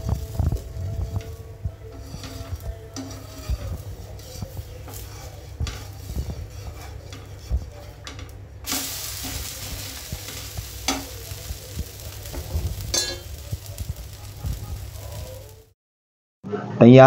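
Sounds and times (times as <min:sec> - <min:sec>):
steel spatula scraping: 0:00.0 - 0:15.6
crepe sizzling on hot iron: 0:00.0 - 0:15.8.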